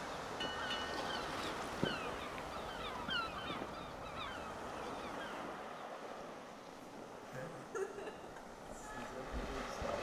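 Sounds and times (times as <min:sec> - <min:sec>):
surf: 0:00.0 - 0:10.0
wind: 0:00.0 - 0:10.0
falling bird calls: 0:00.1 - 0:06.0.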